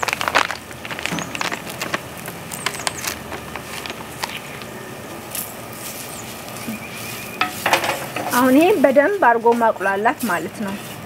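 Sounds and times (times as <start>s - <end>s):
packet crinkling: 0.0s - 6.7s.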